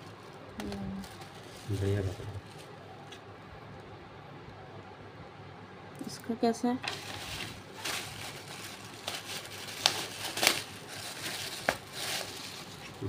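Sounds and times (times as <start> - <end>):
plastic packaging crinkling: 0.0 - 3.2, 6.8 - 13.0.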